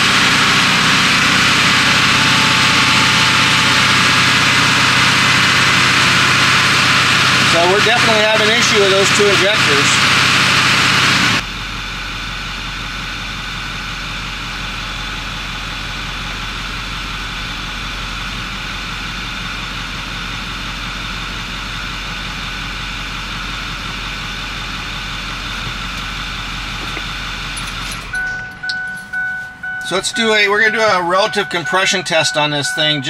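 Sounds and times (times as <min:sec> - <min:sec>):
diesel engine idling: 0:00.0 - 0:33.0
electronic beeping: 0:28.0 - 0:33.0.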